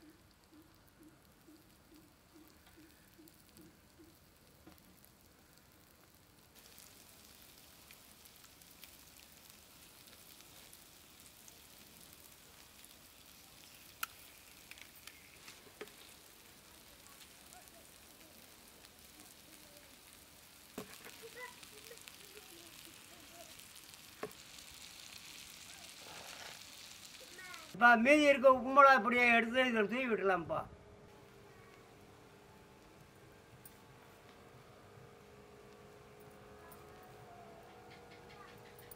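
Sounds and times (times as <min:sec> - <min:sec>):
eggs sizzling in oil: 0:00.0 - 0:27.8.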